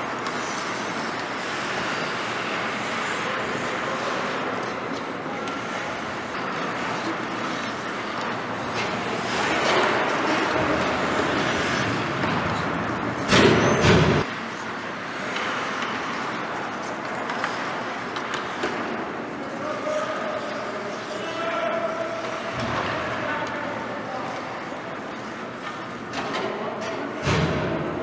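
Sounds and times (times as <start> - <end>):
skates cutting ice: 0.0 - 13.3, 14.2 - 21.6
hockey sticks on ice: 0.0 - 26.6.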